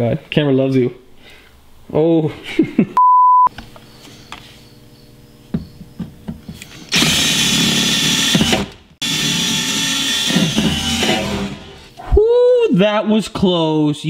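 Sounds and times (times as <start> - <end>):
cordless drill drilling sheet metal: 6.9 - 11.9.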